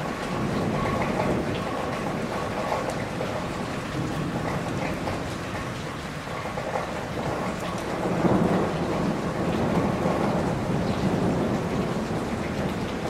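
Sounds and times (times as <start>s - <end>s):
steady rain: 0.0s - 13.0s
thunder rumble: 6.4s - 13.0s.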